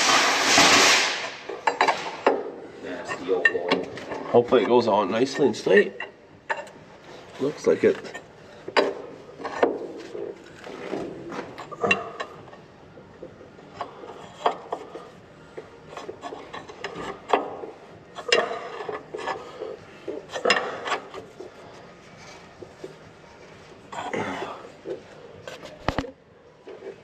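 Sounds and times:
wrench clicking and scraping: 0:18.2 - 0:21.5.

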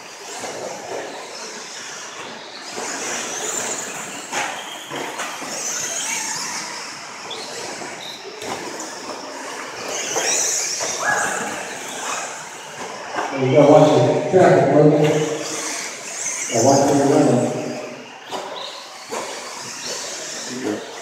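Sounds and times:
rc trucks racing on dirt: 0:00.0 - 0:21.0.

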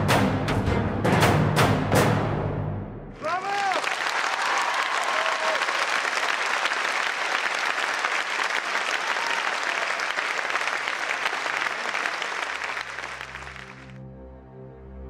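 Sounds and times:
audience applauding: 0:03.2 - 0:14.0.

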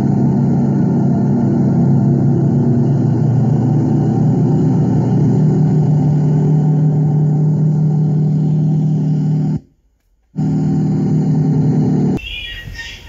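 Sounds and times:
bulldozer diesel engine running: 0:00.0 - 0:09.7, 0:10.3 - 0:12.8.

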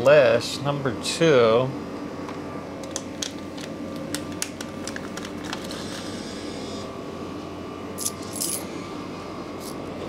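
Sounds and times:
machines humming: 0:00.0 - 0:10.0.

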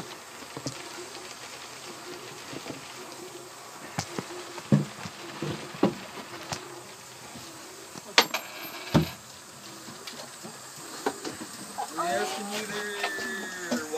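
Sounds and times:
rain hissing: 0:00.0 - 0:13.9.

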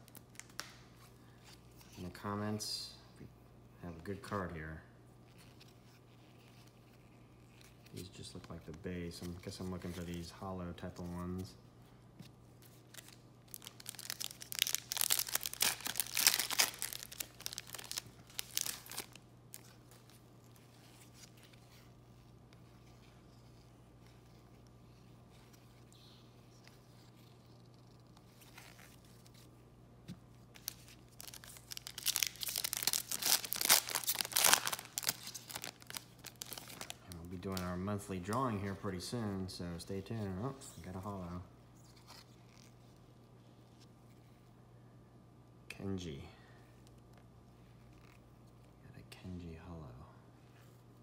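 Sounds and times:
foil pack crinkling and tearing: 0:12.9 - 0:21.6, 0:30.6 - 0:37.7.

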